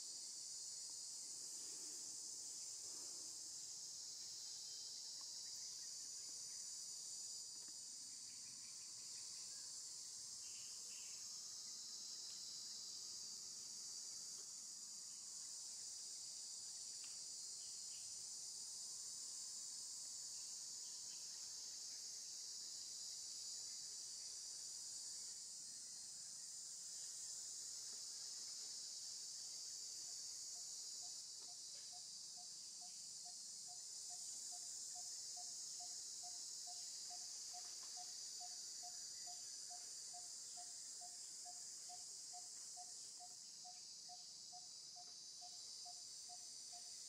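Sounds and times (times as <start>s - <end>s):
shrill insect chorus: 0.0s - 47.0s.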